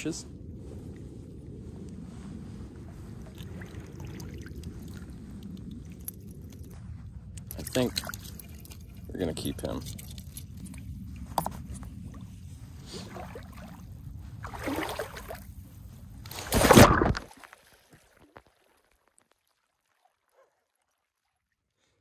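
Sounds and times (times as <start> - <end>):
low rumbling water: 0.0 - 22.0
water splash: 13.0 - 15.5, 16.2 - 20.2.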